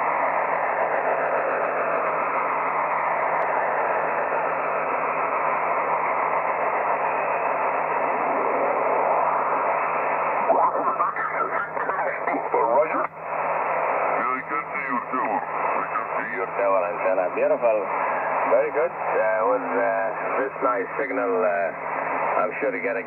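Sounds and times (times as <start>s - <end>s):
radio static hiss: 0.0s - 23.0s
garbled radio voice: 10.4s - 13.2s, 14.1s - 23.0s.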